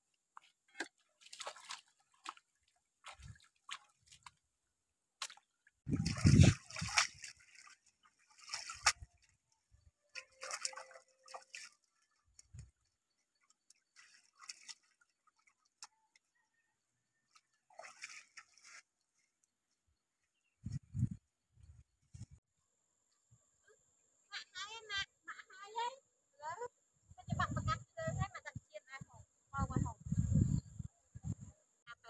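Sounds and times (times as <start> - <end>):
water sloshing and splashing: 0.4 - 4.5, 5.1 - 16.4, 17.2 - 19.4.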